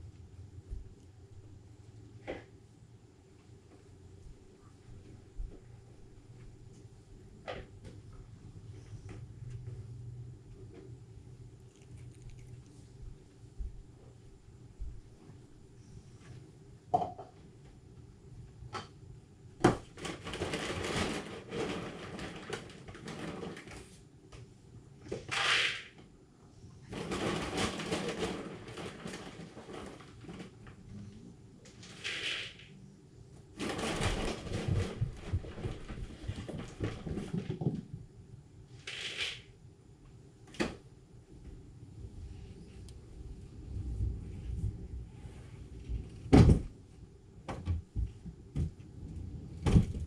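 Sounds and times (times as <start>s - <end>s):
animals crunching food: 11.6s - 13.3s.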